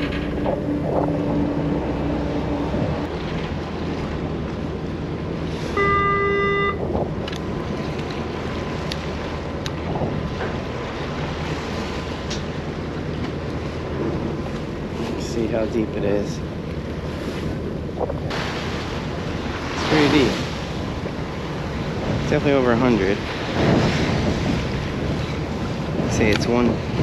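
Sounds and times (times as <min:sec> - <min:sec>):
wind on microphone: 0:00.0 - 0:12.0, 0:17.0 - 0:27.0
boat engines humming: 0:00.0 - 0:27.0
loud horn-like beep: 0:05.7 - 0:06.9.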